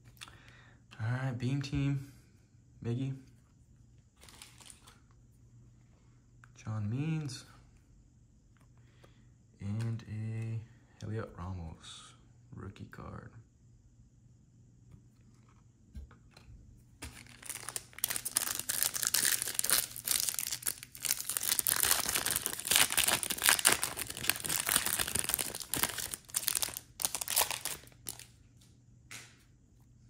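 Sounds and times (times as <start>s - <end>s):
foil wrapper tearing and crinkling: 17.0s - 28.3s.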